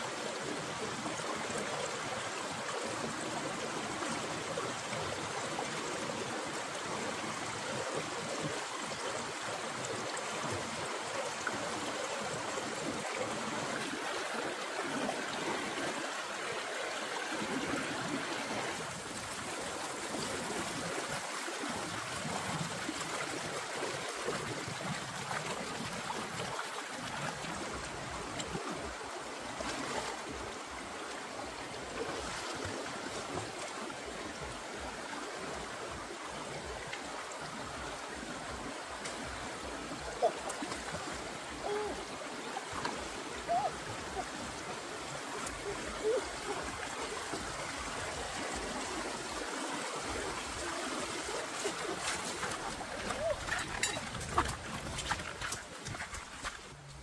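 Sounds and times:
stream flowing over rocks: 0:00.0 - 0:57.0.

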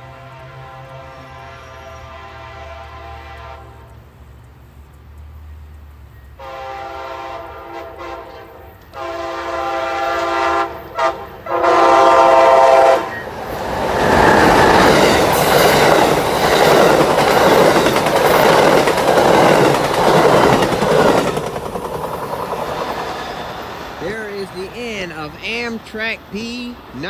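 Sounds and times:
locomotive horn blasts: 0:00.0 - 0:04.0, 0:06.4 - 0:13.3
train wheels clickety-clack: 0:13.2 - 0:26.2.

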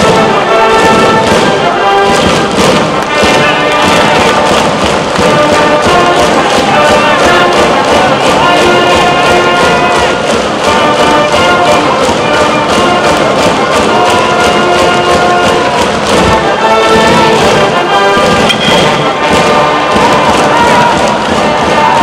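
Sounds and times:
held horn notes: 0:00.0 - 0:22.0
steady drum beat: 0:00.0 - 0:22.0.

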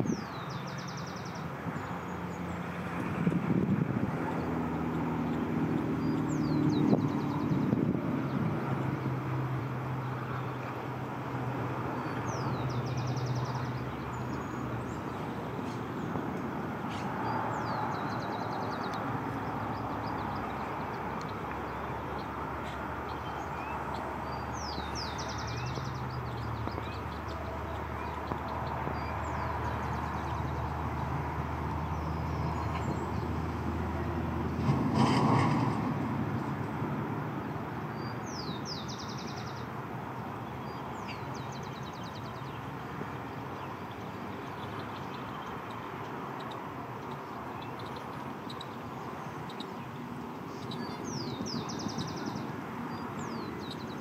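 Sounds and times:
distant road traffic rumble: 0:00.0 - 0:54.0
bird chirps and trills: 0:16.9 - 0:30.7, 0:40.4 - 0:42.6, 0:43.6 - 0:54.0.

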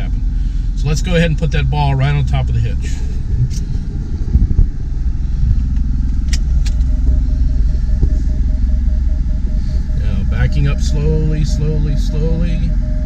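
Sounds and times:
engine rumble inside cabin: 0:00.0 - 0:13.0
rapid repeated beeping: 0:03.9 - 0:13.0.

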